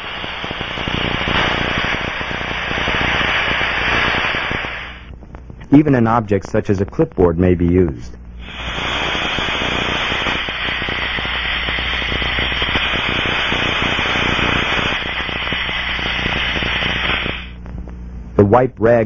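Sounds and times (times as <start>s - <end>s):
pressurized air leak hissing: 0.0s - 5.1s, 8.4s - 17.6s.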